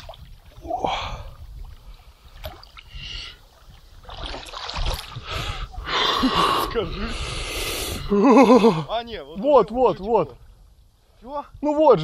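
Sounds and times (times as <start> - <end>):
water splashing around wading legs: 0.0 - 5.3
wind rumble on microphone: 0.0 - 8.2.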